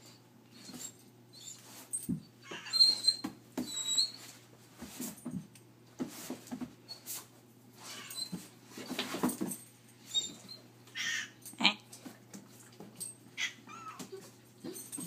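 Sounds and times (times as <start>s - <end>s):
faint high squeaks: 0.5s - 4.4s, 7.8s - 9.0s, 10.0s - 11.3s.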